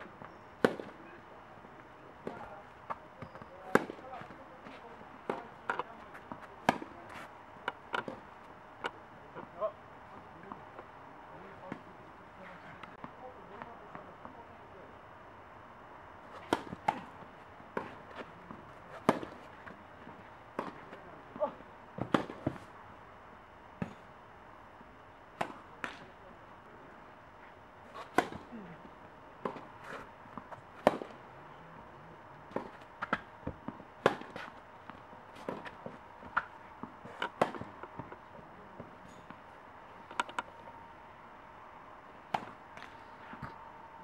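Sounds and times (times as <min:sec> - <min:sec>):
rackets striking tennis ball: 0:00.6 - 0:01.0, 0:02.2 - 0:08.2, 0:16.3 - 0:18.2, 0:18.9 - 0:19.5, 0:28.0 - 0:28.5, 0:32.5 - 0:38.2, 0:40.1 - 0:40.5, 0:42.3 - 0:43.6.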